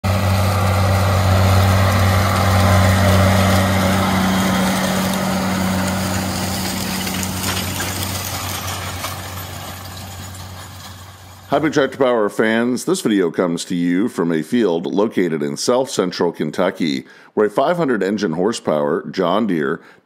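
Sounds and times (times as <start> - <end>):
tractor engine droning: 0.0 - 13.4.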